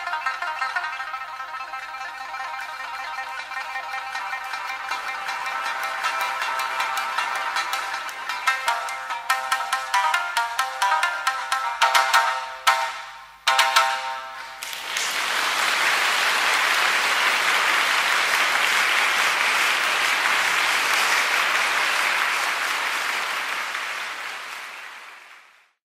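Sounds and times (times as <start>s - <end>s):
struck music notes: 0.0s - 14.7s
audience applause: 4.4s - 8.5s, 14.4s - 25.8s.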